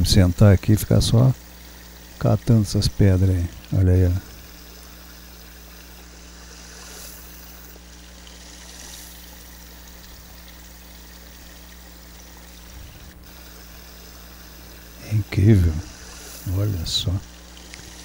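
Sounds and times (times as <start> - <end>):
stream trickling: 0.0 - 18.0.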